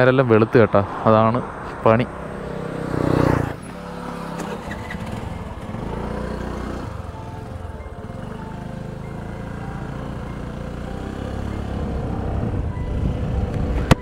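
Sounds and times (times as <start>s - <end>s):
vehicle engine hum: 0.0s - 14.0s.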